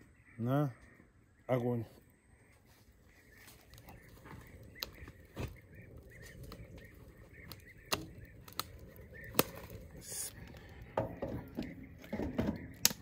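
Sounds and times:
small bird chirping: 0.0s - 13.0s
knocks of wood and metal: 10.9s - 13.0s.

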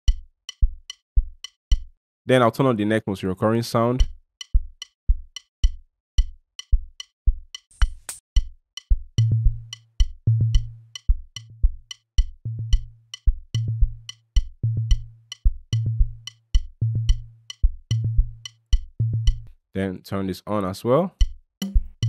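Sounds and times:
clicky percussion ticks: 0.0s - 2.0s, 3.9s - 19.5s, 21.1s - 22.0s
kick drum thumps: 0.1s - 2.0s, 4.0s - 7.4s, 8.4s - 19.5s, 21.2s - 22.0s.

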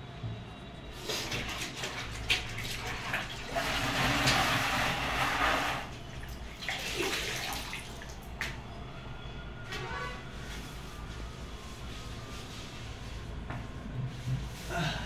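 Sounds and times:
cloth sloshing in bucket: 0.9s - 8.2s.

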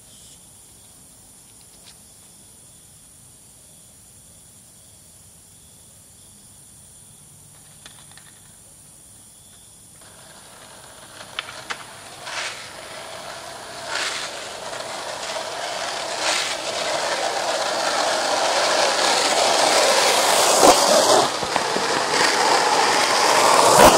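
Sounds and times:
faint hiss: 0.0s - 23.9s
skateboard wheels rolling on asphalt: 7.4s - 23.9s.

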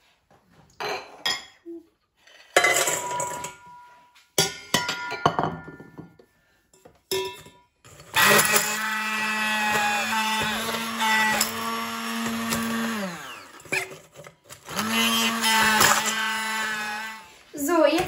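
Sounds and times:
cookies clattering into metal bowl: 2.4s - 6.2s, 7.1s - 17.3s
hand blender running: 8.0s - 17.5s.

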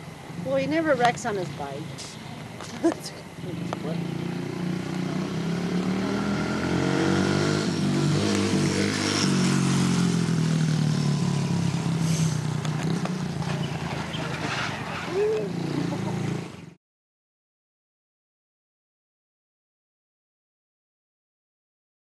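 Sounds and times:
mini motorcycle engine passing: 3.4s - 16.8s.

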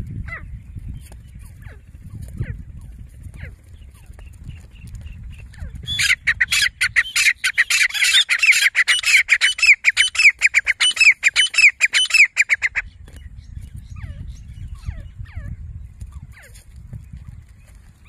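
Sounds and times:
francolin calling: 5.6s - 12.9s.

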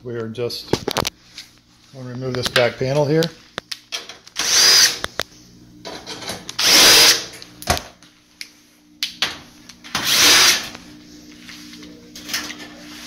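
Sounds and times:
power drill whining: 4.4s - 5.0s, 6.6s - 7.3s, 10.0s - 10.7s.

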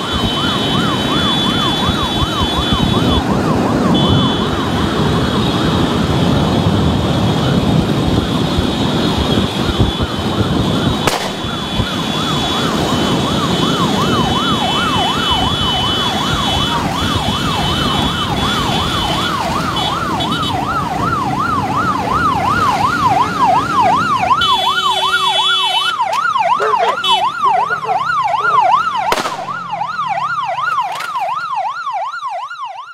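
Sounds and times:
wind noise: 0.0s - 24.3s
electronic siren warbling: 10.4s - 32.9s.

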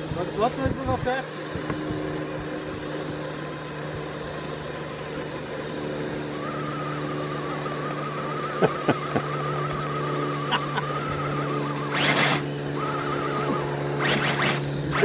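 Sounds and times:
small electric motor whining: 0.0s - 15.0s
sharp clicks: 11.9s - 12.5s, 14.0s - 15.0s.

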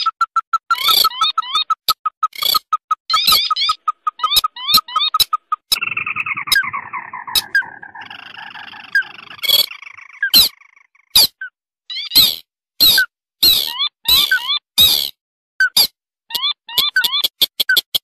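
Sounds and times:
chorus of animal chirps: 0.7s - 17.9s
loud single animal calls: 5.7s - 11.3s.

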